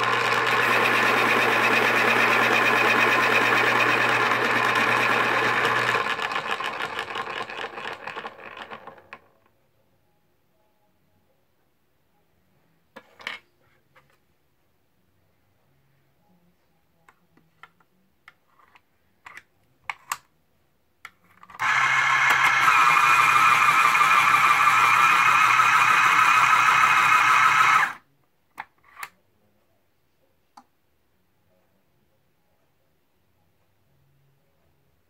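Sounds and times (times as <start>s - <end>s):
electric pencil sharpener grinding: 0.0s - 9.0s, 21.6s - 28.0s.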